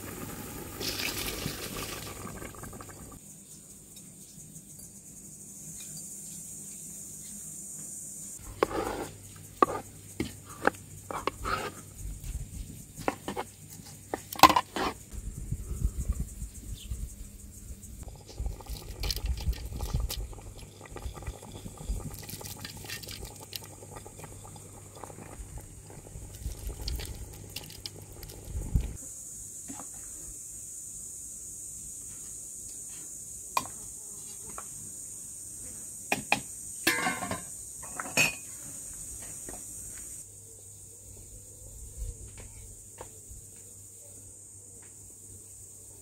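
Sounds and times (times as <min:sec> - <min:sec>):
rice pattering into a pot: 0:00.0 - 0:03.2, 0:18.0 - 0:29.0
dishes clinking: 0:36.9 - 0:38.5.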